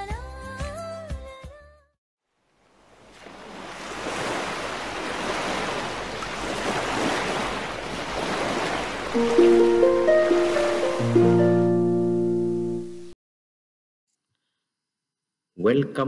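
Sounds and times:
sustained musical notes: 9.2 - 13.2.

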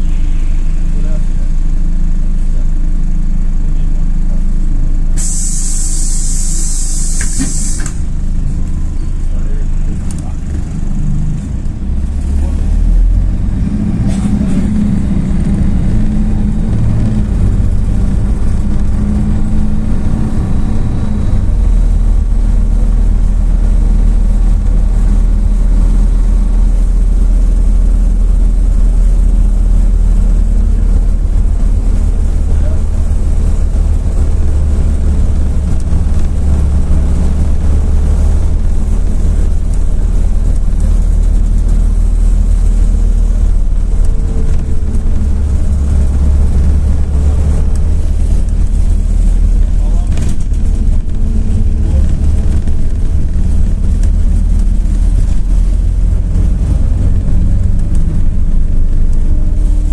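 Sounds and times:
bus engine and road rumble: 0.0 - 59.9.

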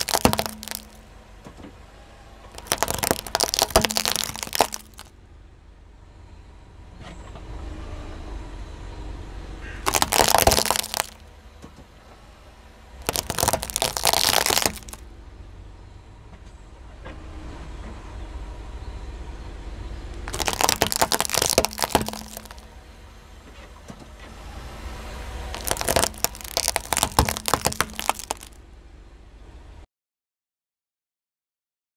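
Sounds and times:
tyre crunching plastic toys: 0.0 - 1.0, 2.6 - 5.1, 9.8 - 11.2, 13.0 - 15.0, 20.2 - 22.7, 25.5 - 28.6.

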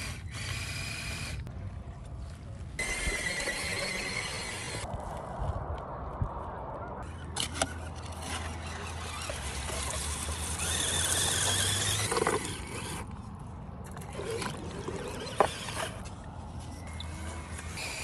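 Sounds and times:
small electric motor whine: 0.0 - 1.4, 2.8 - 4.9, 8.2 - 13.1, 16.7 - 18.0.

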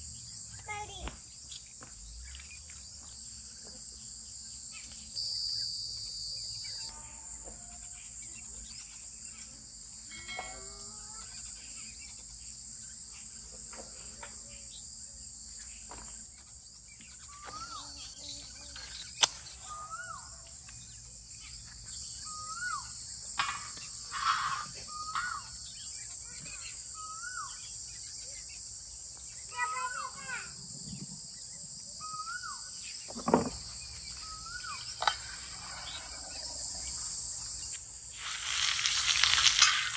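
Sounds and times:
crickets chirring: 0.0 - 39.9
bird calling: 24.2 - 25.6, 33.9 - 37.0, 38.2 - 39.9.

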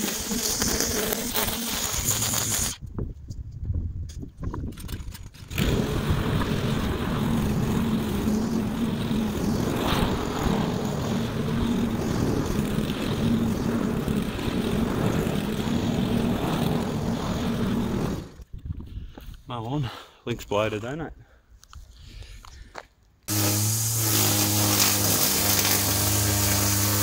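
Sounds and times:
petrol lawn mower cutting grass: 0.0 - 2.8, 5.5 - 18.4, 23.3 - 27.0.

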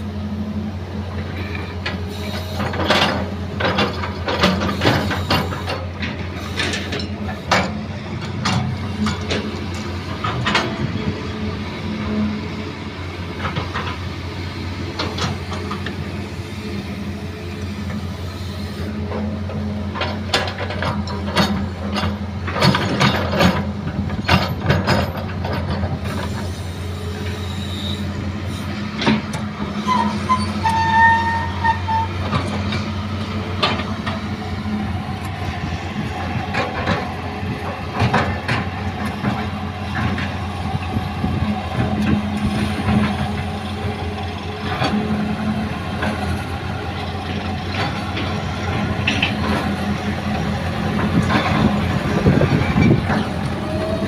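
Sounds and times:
excavator diesel engine running: 0.0 - 54.0
high squeal: 26.8 - 28.7, 29.8 - 32.2.

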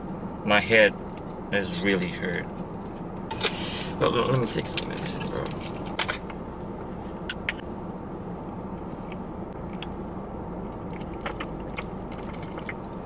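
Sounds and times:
low hum inside car cabin: 0.0 - 13.0.

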